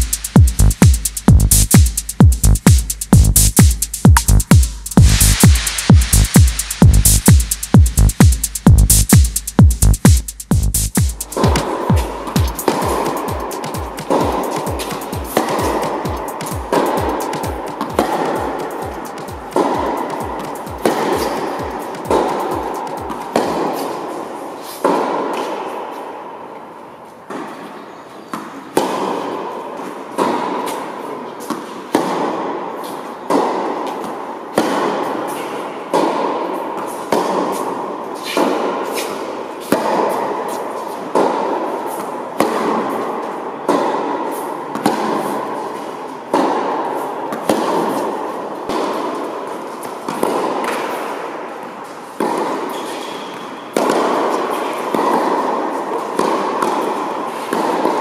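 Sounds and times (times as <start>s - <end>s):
tennis ball struck by racket: 11.3s - 25.8s, 28.2s - 58.0s.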